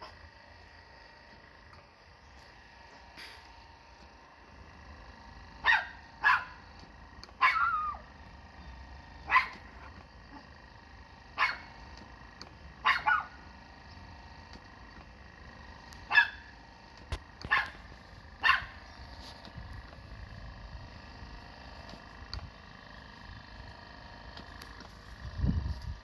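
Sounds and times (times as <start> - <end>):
dog barking: 5.6 - 6.6, 7.4 - 7.9, 9.3 - 9.6, 11.4 - 11.7, 12.8 - 13.4, 16.1 - 16.5, 17.5 - 17.8, 18.4 - 18.8
dog yelping: 5.6 - 6.6, 7.4 - 8.0, 9.2 - 9.6, 11.4 - 11.7, 12.8 - 13.4, 16.1 - 16.5, 17.5 - 17.8, 18.4 - 18.8.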